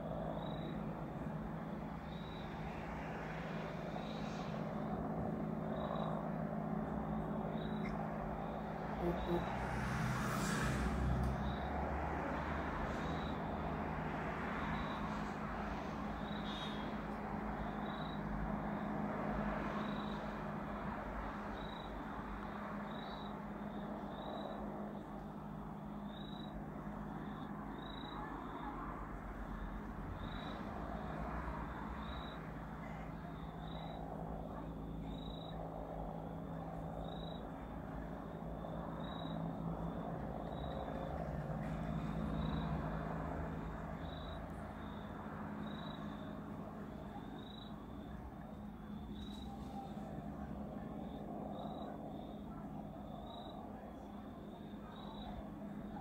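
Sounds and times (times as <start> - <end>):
distant helicopter drone: 0.0 - 56.0.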